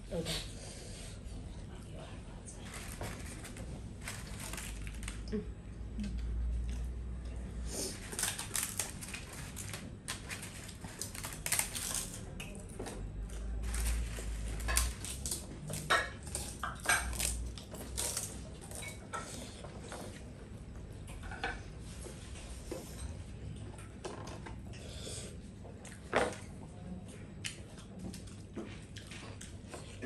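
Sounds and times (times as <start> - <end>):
crackers crunching while chewed: 2.7 - 5.3, 7.9 - 20.1, 27.3 - 30.0.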